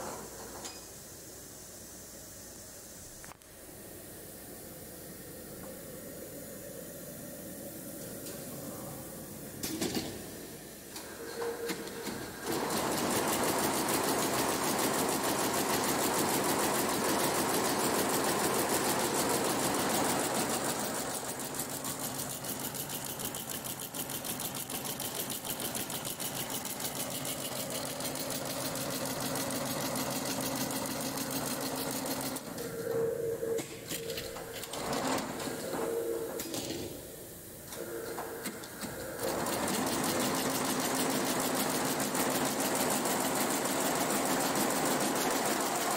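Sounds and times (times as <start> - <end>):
embroidery machine stitching: 11.7 - 32.4, 39.2 - 45.9.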